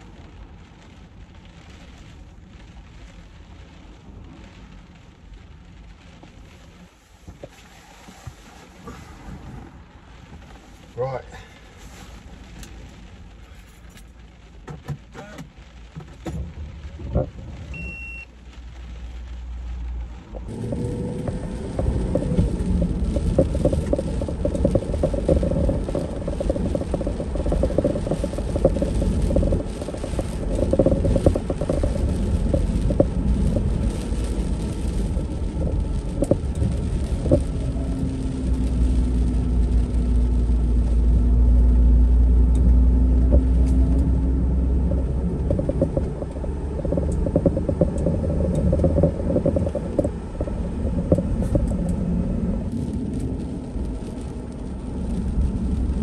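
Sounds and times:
van engine and tyres rumbling: 0.0s - 56.0s
engine hum: 15.2s - 56.0s.

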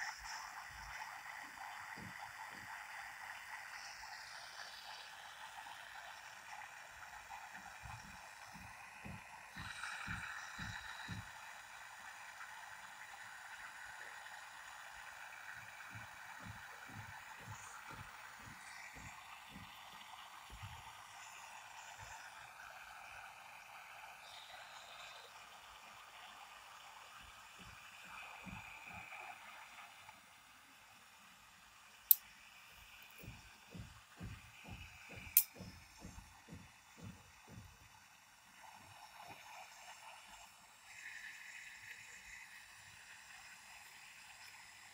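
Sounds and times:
soft low thumps: 7.6s - 11.4s, 15.8s - 20.9s, 33.2s - 37.9s
faint hiss: 37.8s - 44.9s.

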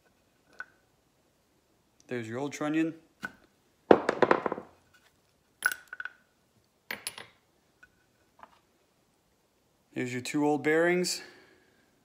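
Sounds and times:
small steel parts clinking: 5.6s - 6.2s.

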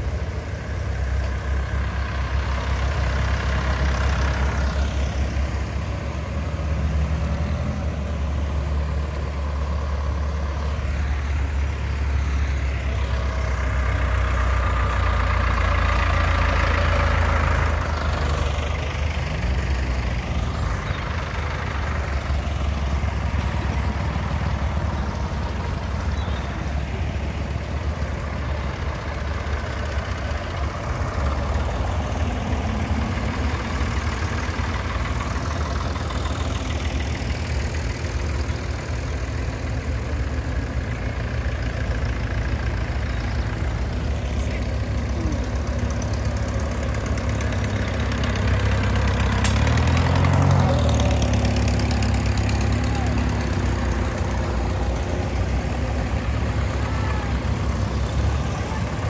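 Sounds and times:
tractor engines running: 0.0s - 59.0s.

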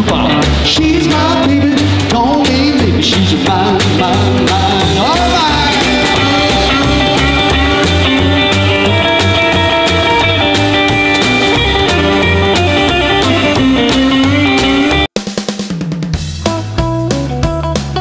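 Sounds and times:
electric guitar: 0.0s - 15.1s, 16.4s - 18.0s
upright bass line: 0.0s - 15.2s, 16.2s - 18.0s
drum kit steady beat: 0.0s - 18.0s.

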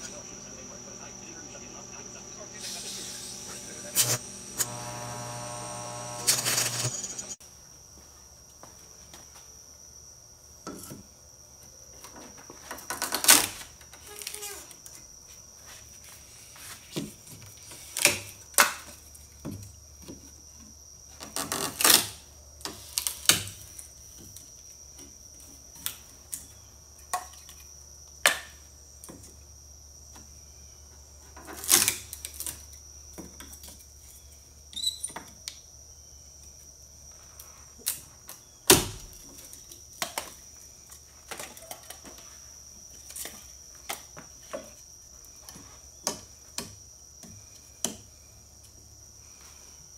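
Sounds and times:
faint high whine: 0.0s - 7.4s.

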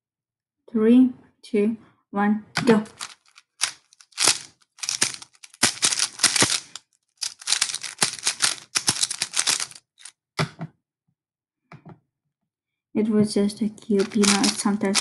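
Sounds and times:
speed cube clacking: 2.6s - 10.1s, 14.0s - 15.0s.

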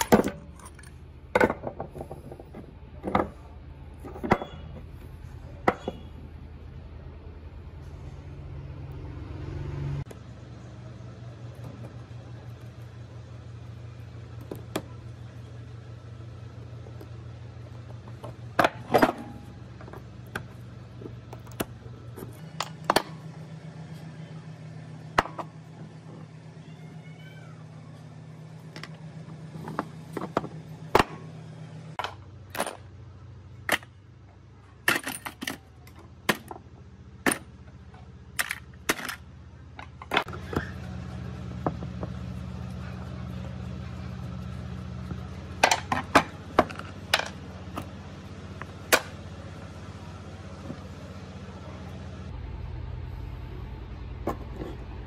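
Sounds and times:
small metal parts clinking: 0.0s - 5.0s, 32.0s - 33.0s, 34.7s - 36.6s, 37.2s - 40.3s
steady low hum: 0.0s - 55.0s.

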